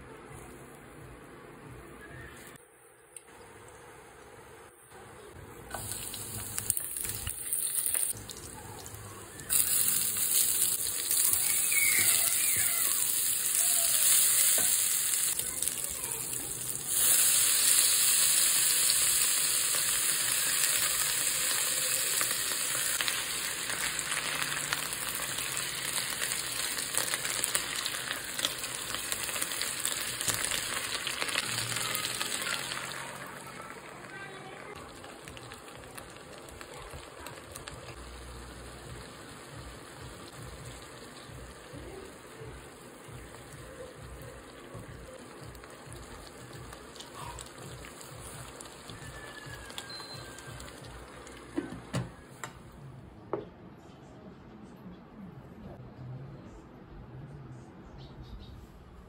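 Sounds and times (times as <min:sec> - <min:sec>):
food sizzling in hot oil: 0:05.7 - 0:52.0.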